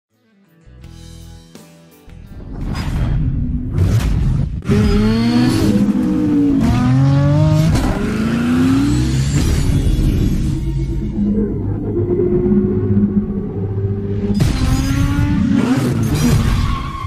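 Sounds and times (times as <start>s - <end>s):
car engine revving through gears: 3.8s - 11.2s, 13.0s - 17.0s.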